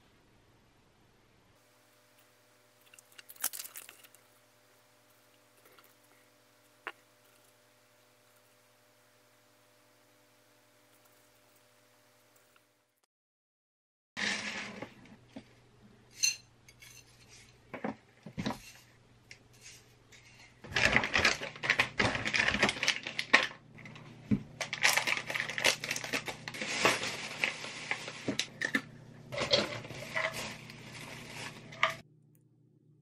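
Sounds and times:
oats and nuts poured in bowl: 2.8s - 4.2s
plastic packaging crinkling: 2.8s - 4.3s, 20.7s - 32.0s.

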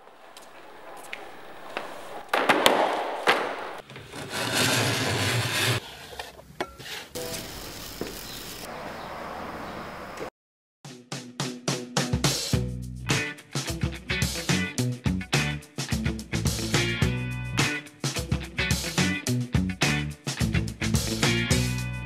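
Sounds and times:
hand tools scraping surfboard: 3.4s - 7.2s.

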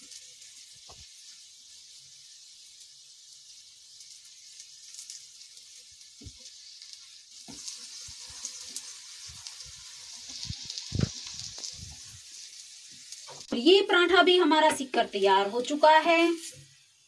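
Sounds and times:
flatbread sizzling on pan: 0.0s - 17.0s.

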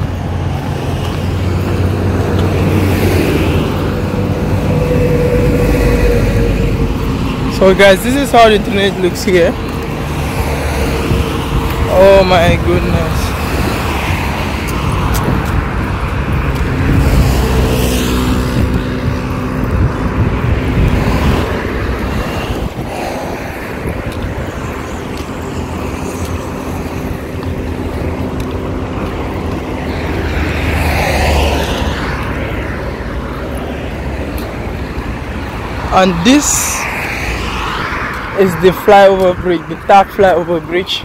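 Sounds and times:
cars driving past: 0.0s - 41.0s.

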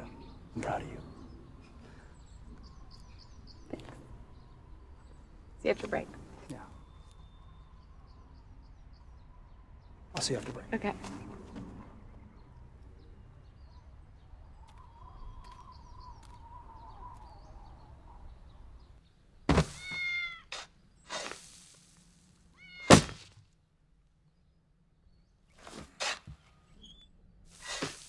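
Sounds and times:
faint outdoor background: 0.0s - 28.0s
kitten meowing: 19.8s - 20.4s, 22.6s - 23.0s.

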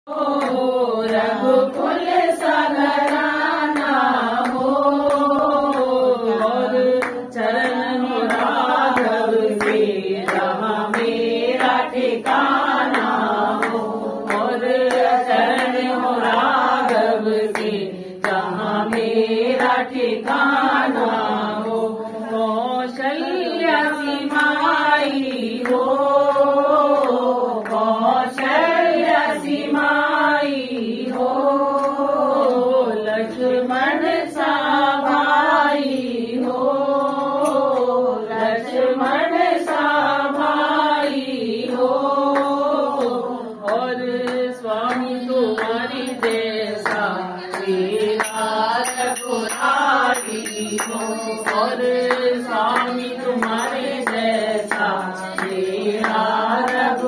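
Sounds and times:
voices singing a devotional chant: 0.0s - 57.0s.

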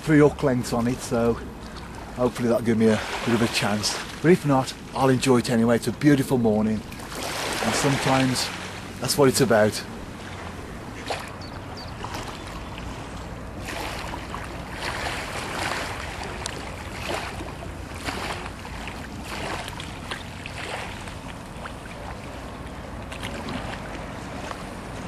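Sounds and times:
water lapping: 0.0s - 25.0s.

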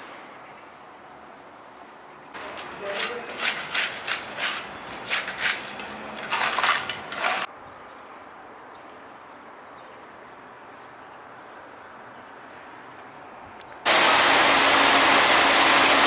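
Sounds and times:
trowel scraping wet concrete: 2.4s - 7.5s.

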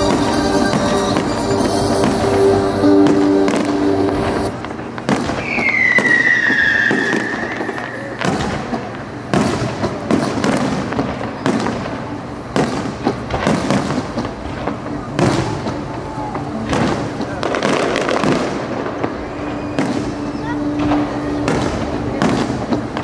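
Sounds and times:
fireworks bangs and crackles: 0.0s - 23.0s
falling firework whistle: 0.1s - 9.0s, 15.2s - 22.4s.

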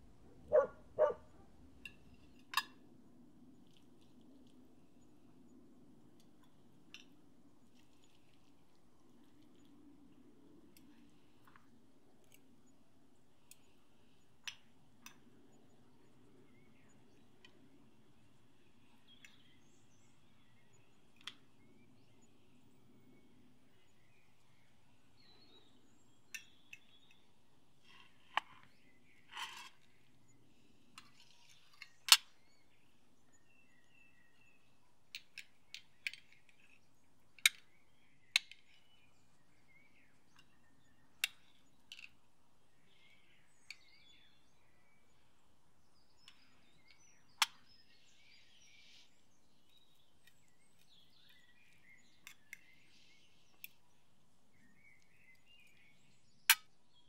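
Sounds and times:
faint bird chirps: 15.4s - 57.0s.

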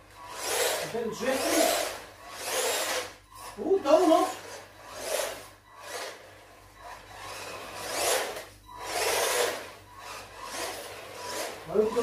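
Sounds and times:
electric motor whirring: 0.1s - 12.0s
tyres scrubbing on floor: 7.5s - 12.0s.

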